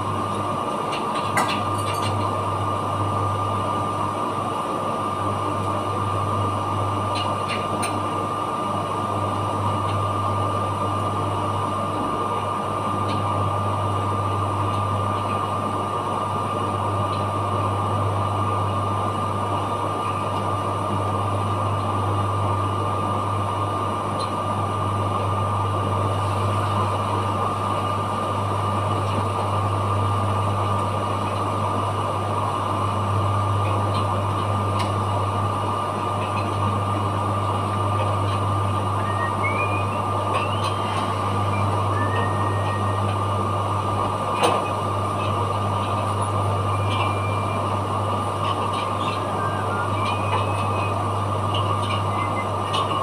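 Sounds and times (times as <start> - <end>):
machinery hum: 0.0 - 53.0
thin high whine: 38.9 - 43.5.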